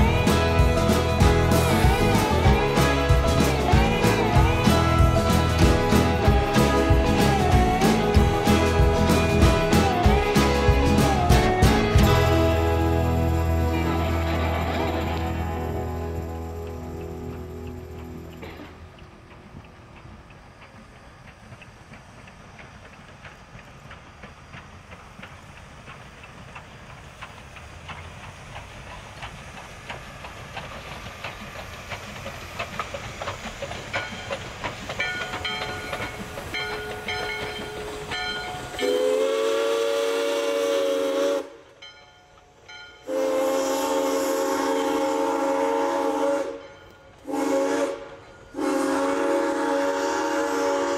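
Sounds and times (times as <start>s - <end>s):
wheels clicking over rails: 0.0s - 39.7s
steam train approaching: 0.0s - 50.9s
steam whistle blasts: 36.5s - 41.7s, 43.0s - 50.9s.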